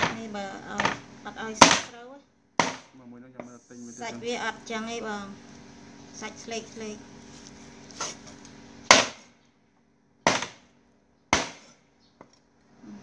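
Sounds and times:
cleaver chopping on wooden block: 1.6 - 1.9, 2.6 - 2.9, 8.9 - 9.2, 10.3 - 10.6, 11.3 - 11.8.

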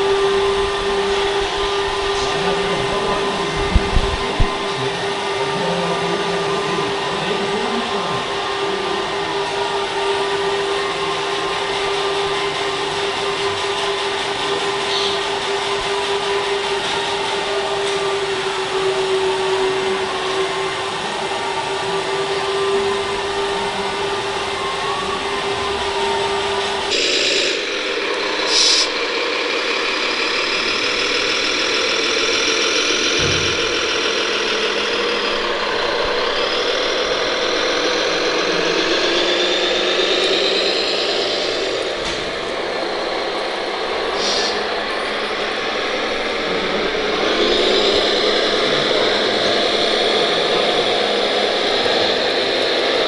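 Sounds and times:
model dump truck drive whining: 0.0 - 53.0
model excavator pump whine: 0.0 - 53.0
short hisses: 28.5 - 29.0, 44.2 - 44.7.

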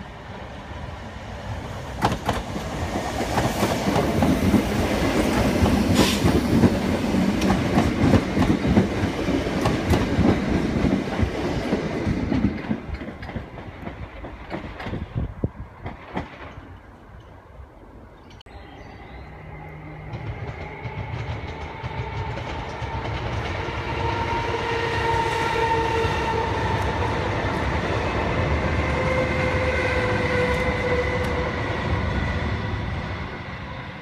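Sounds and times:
electric train rumble and whine: 0.0 - 34.0.

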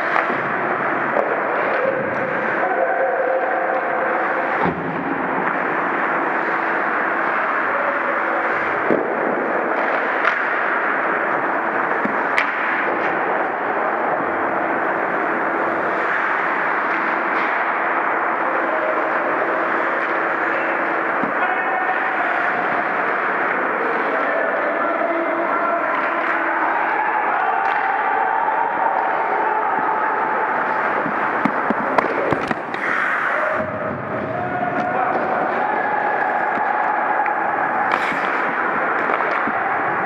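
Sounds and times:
hockey sticks and puck knocking: 0.0 - 2.6, 8.2 - 23.6, 27.5 - 40.0
ice rink noise: 0.0 - 40.0.

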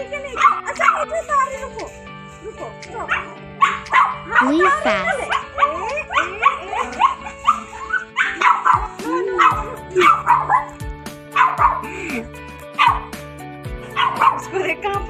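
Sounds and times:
background music with beat: 0.0 - 15.0
dog yapping: 0.2 - 1.2, 2.6 - 11.8, 12.8 - 13.1, 13.9 - 14.4.

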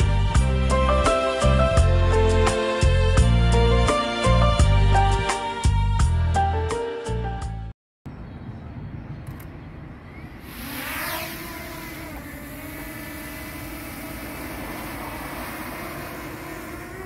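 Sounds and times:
drone propellers whining: 9.3 - 17.0.

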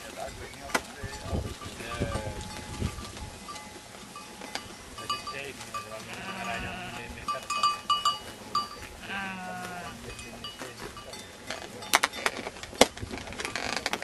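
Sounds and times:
sheep bleating: 5.9 - 7.3, 9.0 - 10.1.

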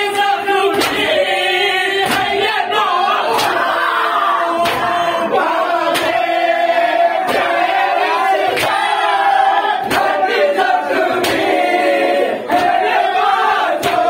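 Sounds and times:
men chanting together: 0.0 - 14.0
hands beating chests: 2.0 - 2.5, 3.3 - 3.6, 4.6 - 5.0, 5.9 - 6.3, 11.1 - 11.6.

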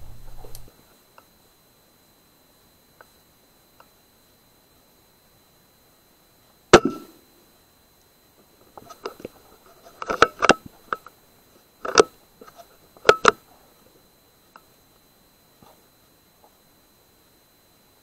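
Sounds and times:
air rifle shot: 6.8 - 7.1.

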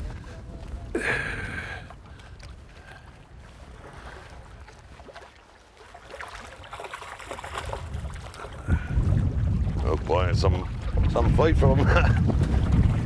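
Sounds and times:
wind rumbling on microphone: 0.0 - 5.4, 6.4 - 13.0
river water lapping: 0.0 - 13.0
fish splashing: 3.8 - 9.0.

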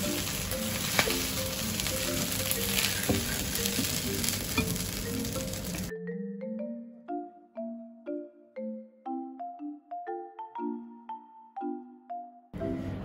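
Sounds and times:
chopsticks clicking: 0.0 - 5.9
noodles sizzling in a frying pan: 0.0 - 5.9
soft background music: 0.0 - 9.3, 10.1 - 13.0.

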